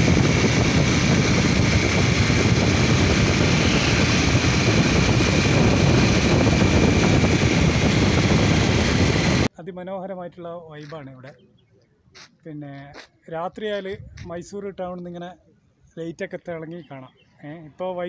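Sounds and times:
faint high whine: 0:00.0 - 0:09.5
motorcycle engine: 0:00.0 - 0:09.5
road noise: 0:00.0 - 0:09.5
wind rushing over microphone: 0:00.0 - 0:09.5, 0:13.9 - 0:14.5.

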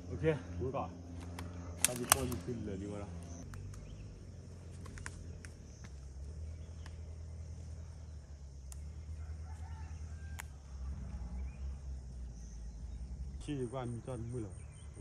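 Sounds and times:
steady low rumble: 0:00.0 - 0:15.0
faint clicks: 0:06.7 - 0:07.0, 0:08.6 - 0:08.9
distant rooster crowing: 0:08.8 - 0:12.5.

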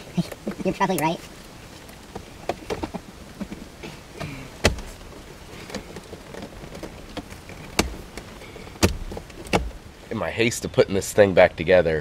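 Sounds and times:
plastic trim clicks and knocks: 0:04.6 - 0:05.1, 0:05.7 - 0:09.8.

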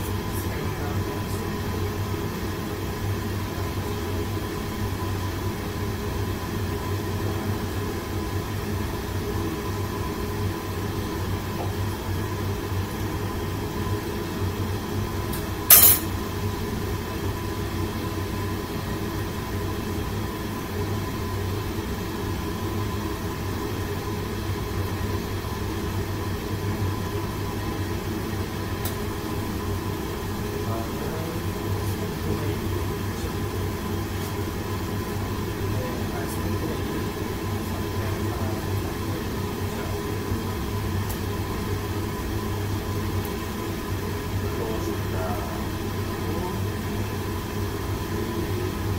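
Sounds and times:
kitchen range and exhaust hood hum: 0:00.0 - 0:48.9
sharp metal clank: 0:15.7 - 0:16.1.

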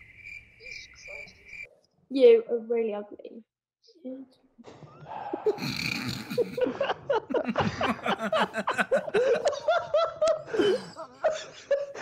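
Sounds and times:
people laughing together: 0:05.0 - 0:12.0.

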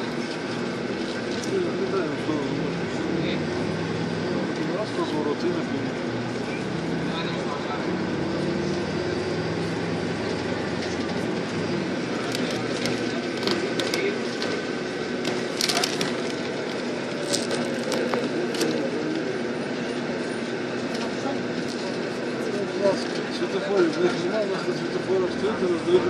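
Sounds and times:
vehicle engine and road noise: 0:00.0 - 0:26.0
sharp clicks and rattles: 0:12.2 - 0:18.9.

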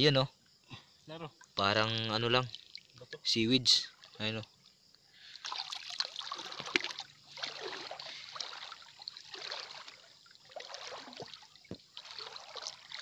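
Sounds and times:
seawater splashing and sloshing: 0:05.2 - 0:13.0.

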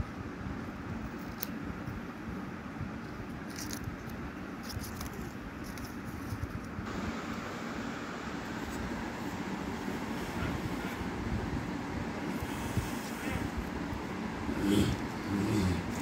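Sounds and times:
low background rumble: 0:00.0 - 0:16.0.

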